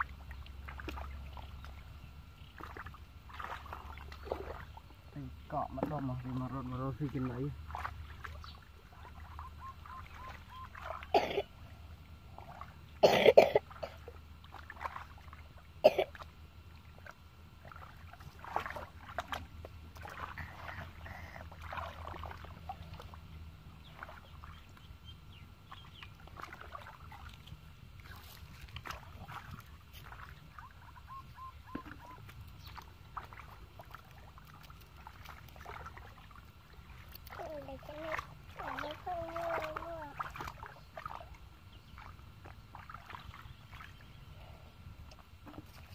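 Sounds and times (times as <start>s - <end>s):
hands splashing in muddy water: 0.0s - 5.0s, 5.8s - 11.1s, 13.7s - 16.3s, 16.9s - 24.8s, 25.6s - 31.0s, 31.6s - 44.2s
sharp loud splashes: 2.6s - 4.7s, 36.9s - 41.3s.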